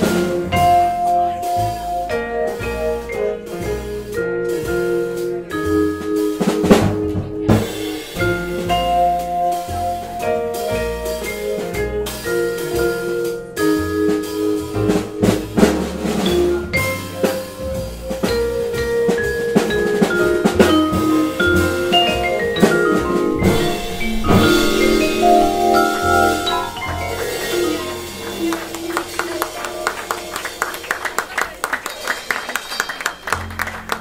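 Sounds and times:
walking upright bass: 0:00.0 - 0:31.7
drum kit: 0:00.0 - 0:32.7
vibraphone melody: 0:18.3 - 0:30.6.

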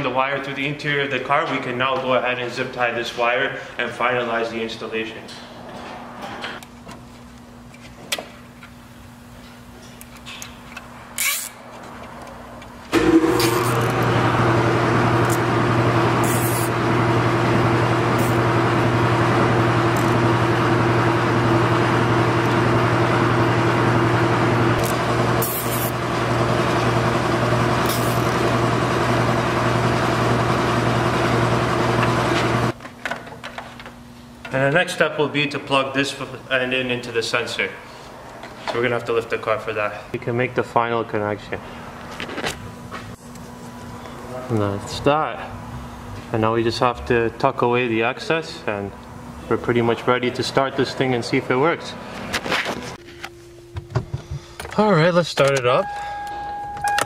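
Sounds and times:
motor running with even hum: 0:12.9 - 0:32.8.

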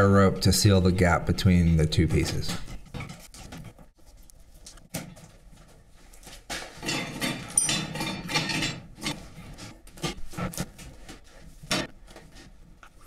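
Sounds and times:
rubbing and scraping: 0:02.3 - 0:04.9, 0:06.4 - 0:13.0.

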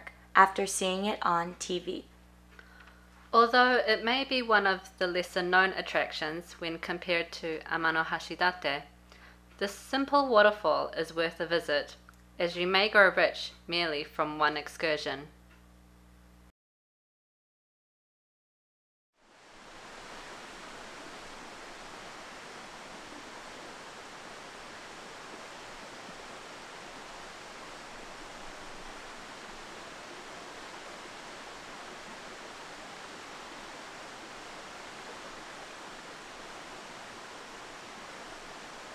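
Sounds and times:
waterfall rushing: 0:19.4 - 0:38.9.

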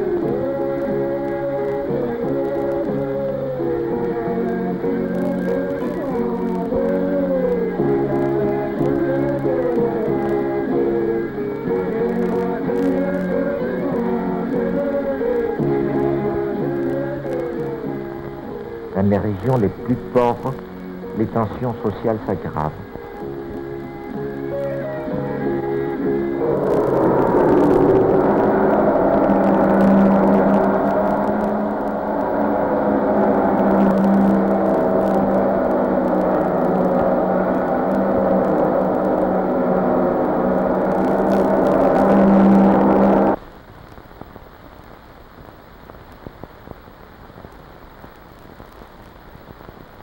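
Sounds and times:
steady low tone: 0:00.0 - 0:43.4
faint clicks and crackles: 0:00.0 - 0:50.0
low hiss: 0:00.0 - 0:50.0
sustained music chord: 0:26.1 - 0:43.4
shimmering gong drone: 0:26.4 - 0:43.4.

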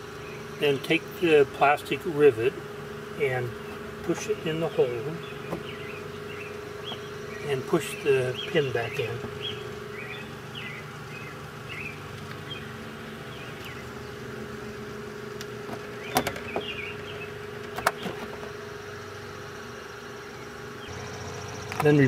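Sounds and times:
background hum: 0:00.0 - 0:22.0
faint bird chirps: 0:04.6 - 0:07.6, 0:08.2 - 0:14.2.

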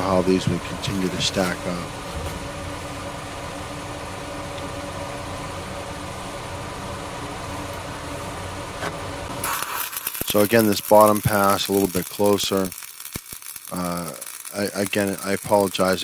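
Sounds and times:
welding arc hissing crackle: 0:00.0 - 0:01.9, 0:09.4 - 0:16.0
machine humming: 0:00.0 - 0:16.0
steady tones: 0:09.4 - 0:16.0.

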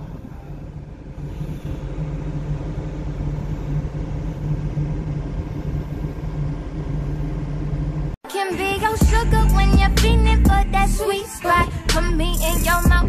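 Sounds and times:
ship engine humming: 0:00.0 - 0:08.2.

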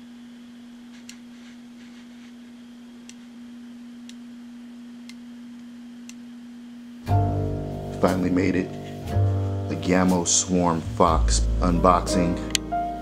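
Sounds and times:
steady single-pitched hum: 0:00.0 - 0:09.6.

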